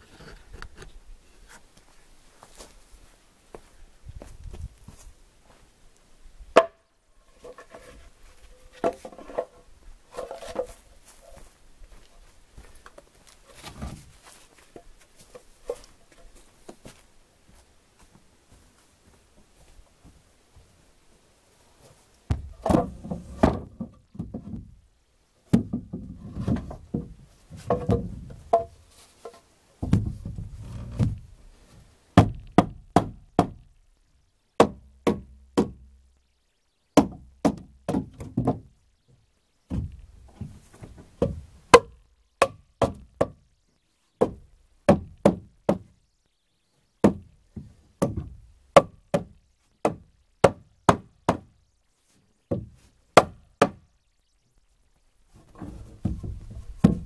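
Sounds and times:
wooden boards clunking: 7.4s - 10.8s, 22.3s - 24.8s, 25.5s - 31.3s, 37.0s - 38.8s, 55.4s - 57.0s.

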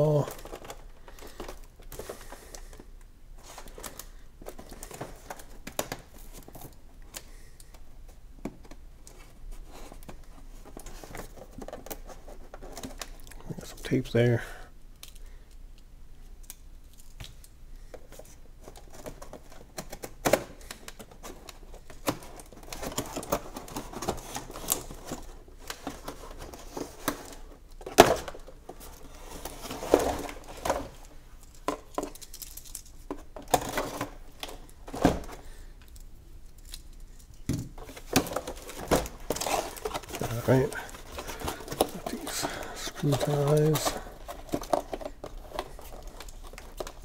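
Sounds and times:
cardboard scraping and rustling: 37.8s - 47.0s.

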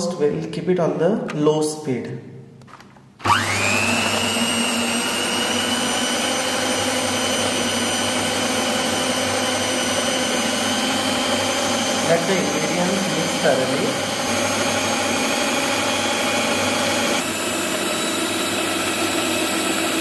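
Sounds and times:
electric hand mixer whine: 3.2s - 20.0s.

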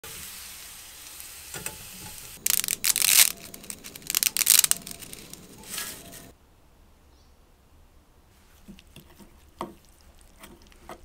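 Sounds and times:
bacon sizzling in a frying pan: 0.0s - 5.8s
dry spaghetti snapping: 2.4s - 5.5s.

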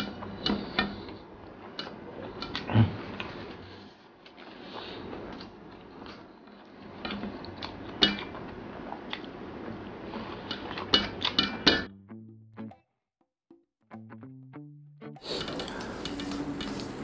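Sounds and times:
chewing: 0.1s - 9.4s, 10.1s - 11.3s, 15.2s - 17.0s
background music: 13.9s - 17.0s.

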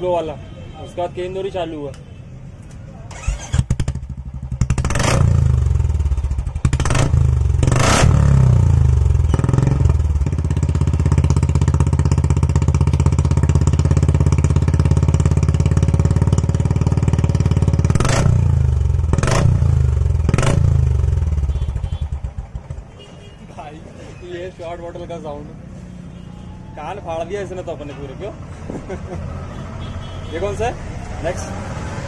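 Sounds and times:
motorcycle engine revving and idling: 3.1s - 23.0s.

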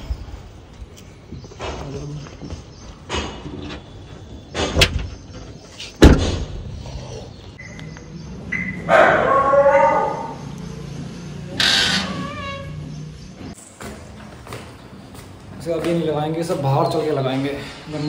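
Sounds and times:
tailgate slamming shut: 6.0s - 6.7s
metal gate squeaking open: 11.6s - 12.9s.

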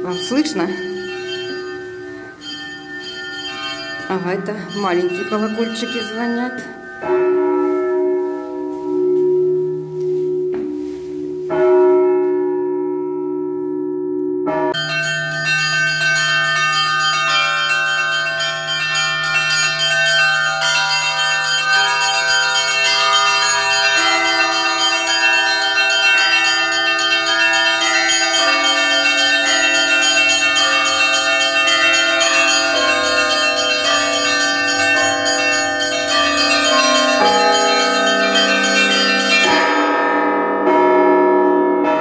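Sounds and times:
church bells ringing: 0.0s - 42.0s
small bells chiming quickly: 14.8s - 39.8s.

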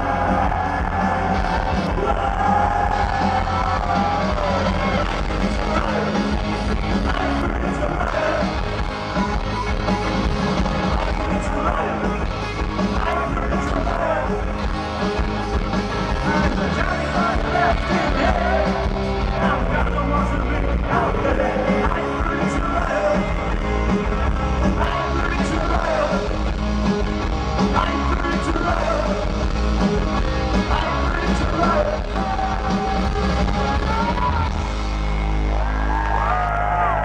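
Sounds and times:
shouted lead vocal: 0.0s - 10.0s, 10.6s - 26.5s, 27.6s - 29.4s, 30.6s - 34.7s, 35.4s - 37.0s
rock band playing live: 0.0s - 37.0s.

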